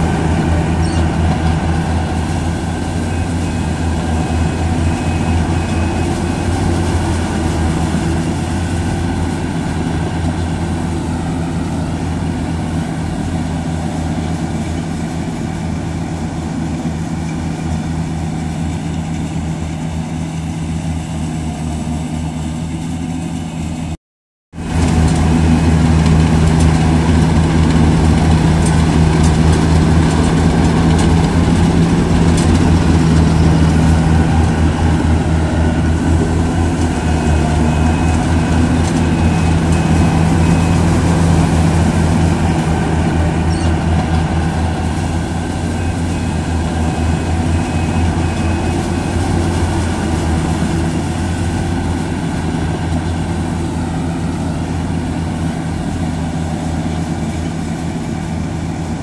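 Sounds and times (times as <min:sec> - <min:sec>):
combine harvester diesel engine: 0:00.0 - 0:59.0.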